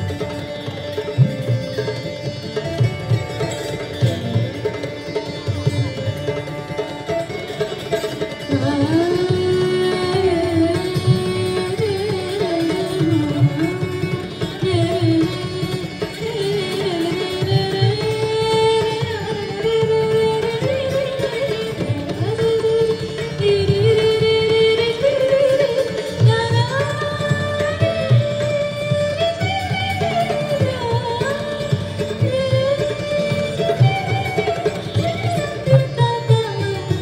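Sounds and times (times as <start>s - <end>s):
tabla: 0.0s - 37.0s
woman singing: 8.5s - 35.4s.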